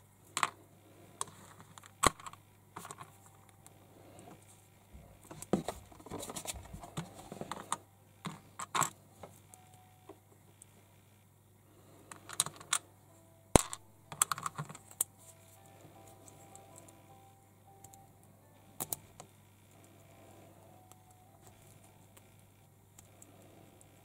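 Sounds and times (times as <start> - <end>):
plastic toy parts clicking: 12.1 - 12.8, 13.6 - 15.1.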